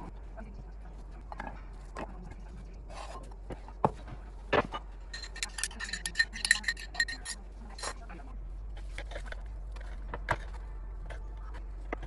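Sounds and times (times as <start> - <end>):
spoon clinking against glass bowl: 5.1 - 7.9.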